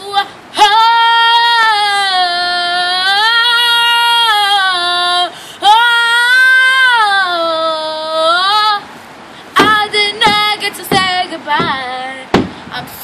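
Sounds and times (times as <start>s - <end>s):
girl singing unaccompanied: 0.0s - 13.0s
breath: 5.3s - 5.6s, 9.2s - 9.6s.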